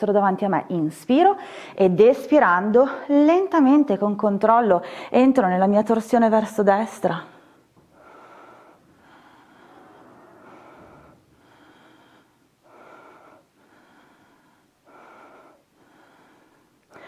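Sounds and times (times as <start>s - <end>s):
person breathing: 1.4s - 1.8s, 4.8s - 5.2s, 7.3s - 17.0s.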